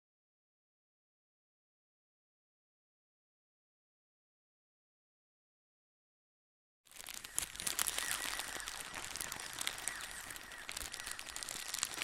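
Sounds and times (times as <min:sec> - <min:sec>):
dense crackling clicks: 0:06.9 - 0:12.0.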